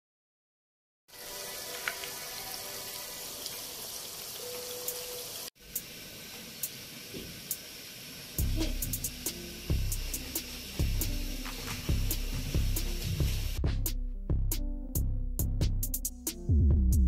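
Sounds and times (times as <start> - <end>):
food deep-frying in hot oil: 1.1 - 13.6.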